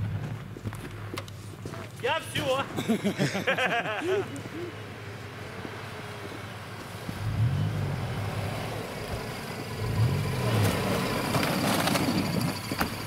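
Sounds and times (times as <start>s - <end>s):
tyres churning snow: 1.6s - 13.0s
car engine revving: 4.5s - 13.0s.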